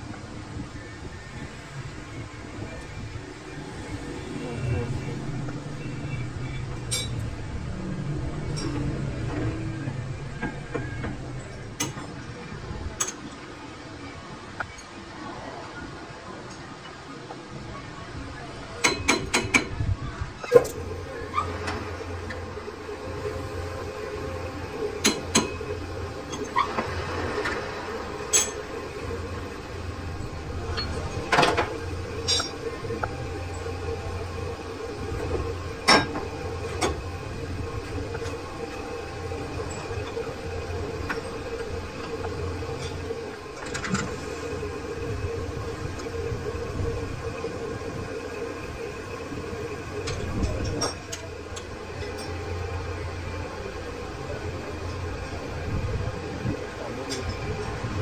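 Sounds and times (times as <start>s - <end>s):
lathe humming and rumbling: 0.0s - 58.0s.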